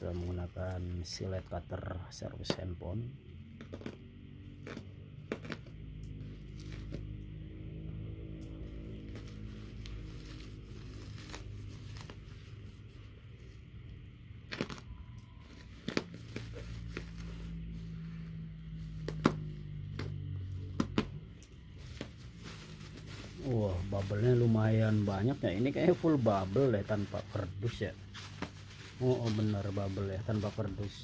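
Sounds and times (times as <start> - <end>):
steady low hum: 0.0 - 31.0
packaging crinkling and tearing: 8.5 - 13.5, 14.3 - 31.0.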